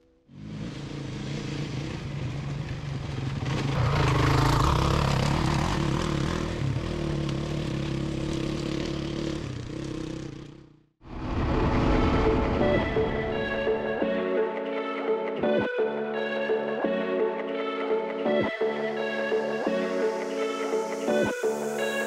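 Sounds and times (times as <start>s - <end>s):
motorcycle engine running: 0.4s - 10.9s
wind rushing over microphone: 11.0s - 14.1s.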